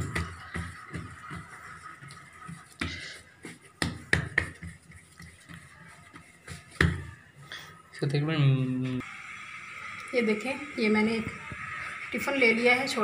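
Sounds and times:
hands patting dough: 0:00.0 - 0:07.4.

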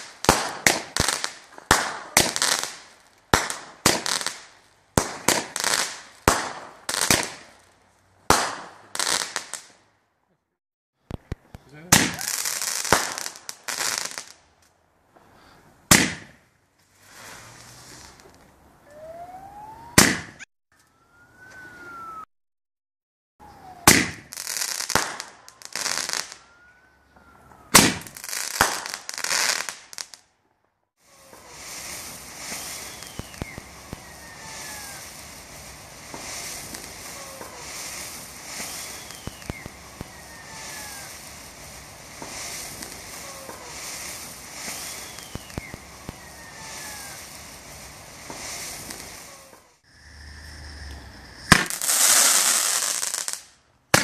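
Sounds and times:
firework fountain hissing: 0:00.0 - 0:07.7, 0:16.8 - 0:18.4, 0:31.0 - 0:53.6
aerial firework bursts: 0:15.9 - 0:20.5, 0:23.5 - 0:26.4, 0:31.0 - 0:54.0
rising firework whistle: 0:16.9 - 0:22.3, 0:23.4 - 0:30.1, 0:31.0 - 0:53.5
falling whistles: 0:18.8 - 0:20.2, 0:20.8 - 0:22.3, 0:23.4 - 0:28.4, 0:31.1 - 0:53.3.

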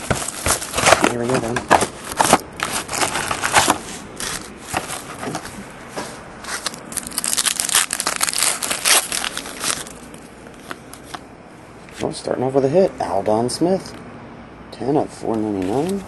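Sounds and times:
foil pack tearing: 0:00.0 - 0:05.4, 0:06.6 - 0:10.1
plastic wrapper crinkling: 0:00.0 - 0:05.6, 0:06.5 - 0:11.2.

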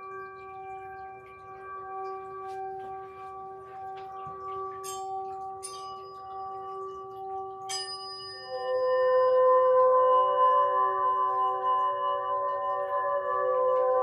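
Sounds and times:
singing bowl ringing: 0:00.0 - 0:14.0
bright metallic strikes: 0:02.9 - 0:08.9.

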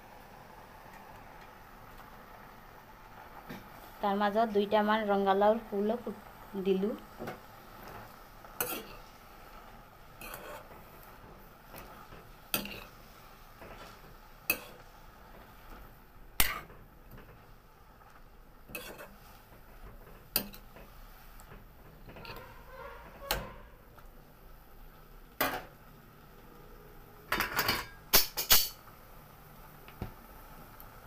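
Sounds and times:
metal spoon clinking on pan: 0:27.3 - 0:28.8.

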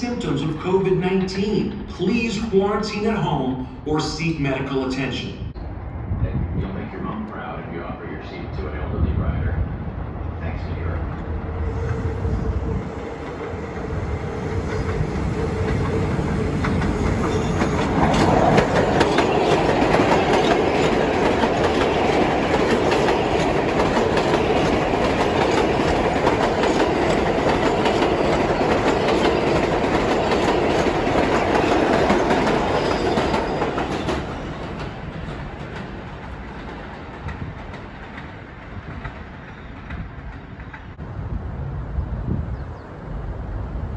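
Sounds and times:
subway train whine: 0:00.0 - 0:43.9
wheels clattering over rails: 0:14.6 - 0:41.0.

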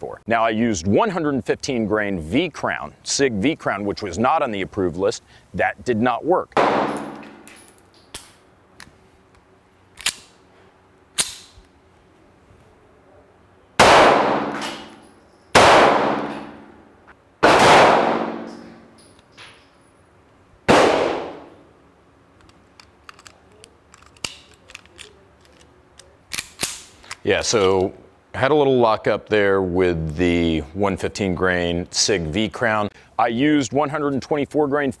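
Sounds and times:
pistol shots echoing: 0:06.6 - 0:07.5, 0:13.8 - 0:16.8, 0:17.4 - 0:18.9, 0:20.7 - 0:21.6.

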